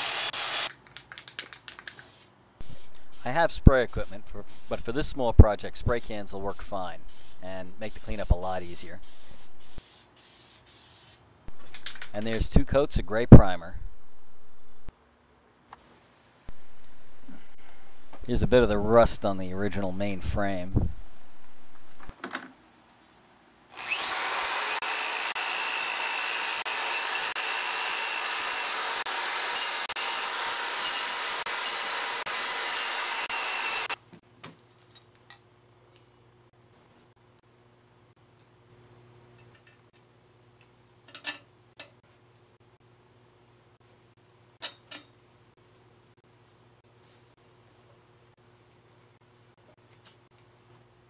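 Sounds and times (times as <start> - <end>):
electric drill grinding metal: 0.0 - 0.7, 23.7 - 34.0
steady low hum: 2.2 - 9.8, 11.3 - 15.1, 16.5 - 22.1
faint steady whine: 16.4 - 22.1.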